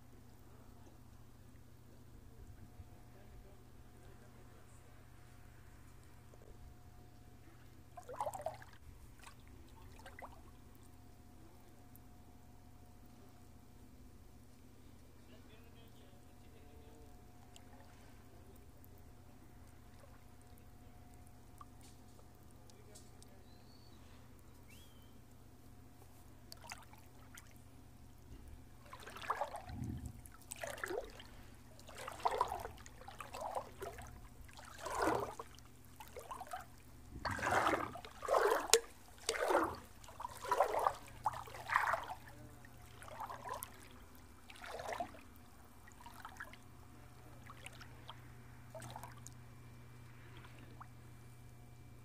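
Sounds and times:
shallow water splashing and trickling: 0:07.3 - 0:12.0, 0:17.0 - 0:51.0.

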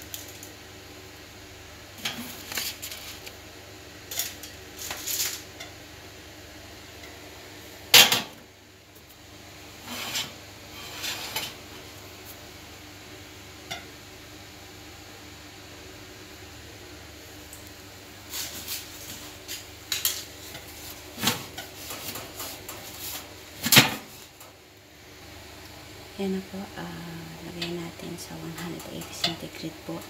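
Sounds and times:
baking pans scraping on oven rack: 0:09.8 - 0:11.7.

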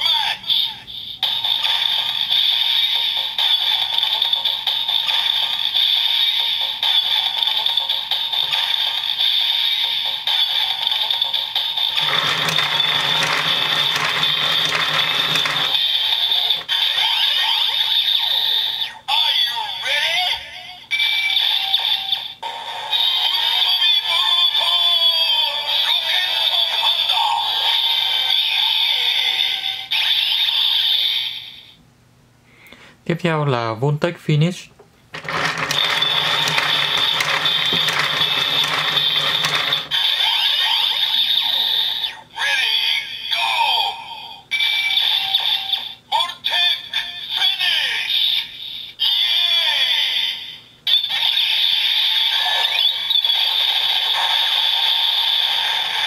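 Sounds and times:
electronic toy charging sound: 0:01.3 - 0:18.7, 0:35.2 - 0:42.0, 0:51.1 - 0:56.0
toy crank ratcheting clicks: 0:11.8 - 0:17.1, 0:35.2 - 0:41.0.

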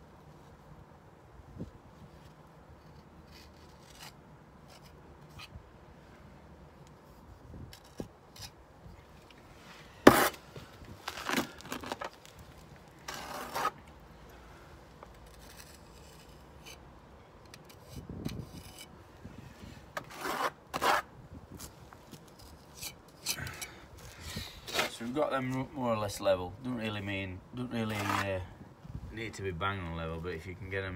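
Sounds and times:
trowel scraping mortar on brick: 0:10.0 - 0:10.4, 0:13.0 - 0:13.8, 0:15.2 - 0:16.8, 0:17.5 - 0:18.9, 0:20.0 - 0:21.1, 0:27.8 - 0:28.4.

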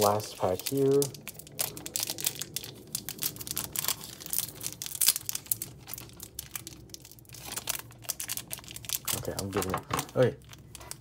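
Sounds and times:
foil wrapper crinkling and tearing: 0:00.0 - 0:11.0.

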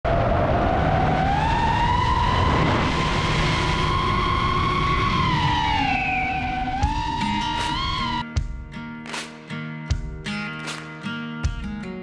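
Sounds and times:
low rushing noise: 0:00.0 - 0:08.2
drone motors whining: 0:00.2 - 0:08.2.

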